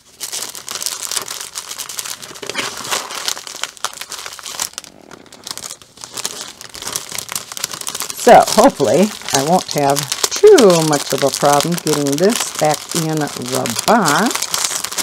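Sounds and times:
plastic and paper crinkling: 0.0 - 15.0.

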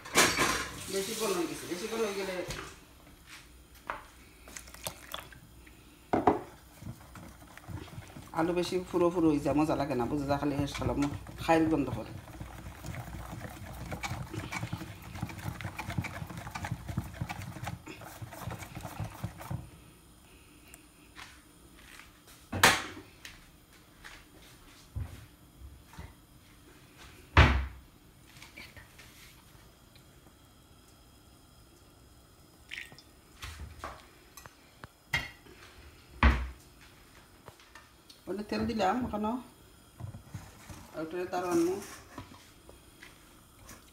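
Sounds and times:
oil pouring: 4.2 - 8.3, 32.4 - 33.4
wire whisk beating batter in bowl: 6.6 - 19.7.

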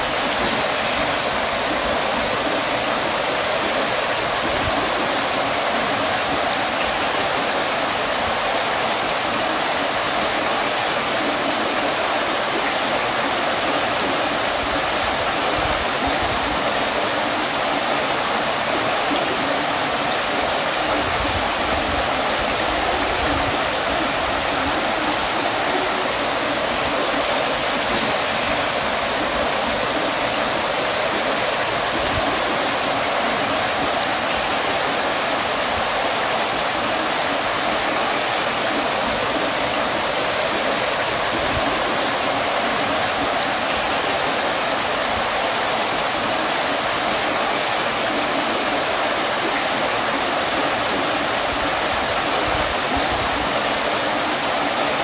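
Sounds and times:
water fountain splashing: 0.0 - 55.0
short high-pitched blip: 27.4 - 27.9.

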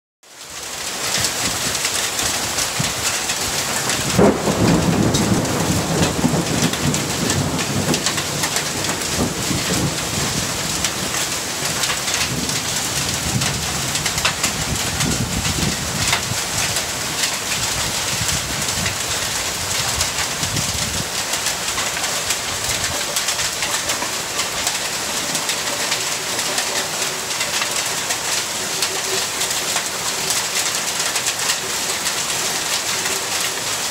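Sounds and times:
rain on leaves and pavement: 0.2 - 33.9
thunder rumbling: 2.5 - 27.8.

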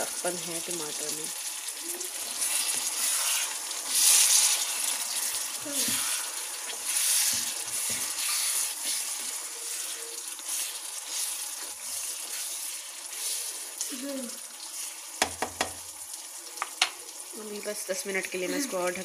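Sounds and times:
vegetables sizzling in oil: 0.0 - 19.0
spatula stirring in pot: 1.4 - 15.9.

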